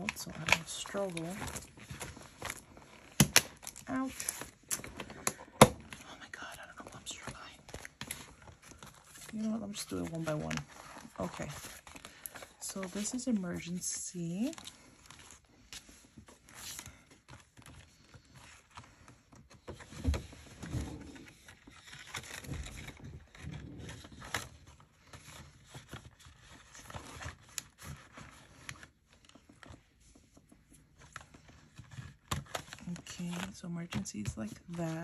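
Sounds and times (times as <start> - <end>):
paper bills rustling: 0.0 - 5.5, 6.8 - 19.9.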